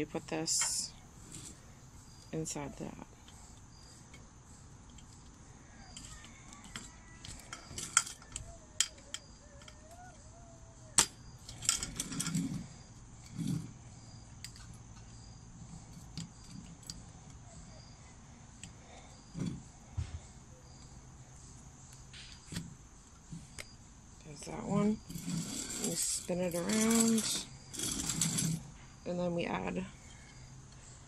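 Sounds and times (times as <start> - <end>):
metal poles clicking: 4.8 - 12.6
poles clattering rattle: 4.9 - 10.2, 10.9 - 13.8.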